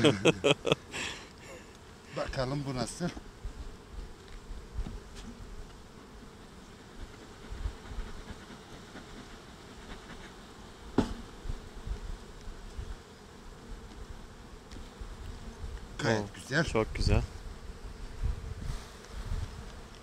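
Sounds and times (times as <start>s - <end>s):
honeybees buzzing: 0.0s - 20.0s
hive tool knock: 10.9s - 11.4s.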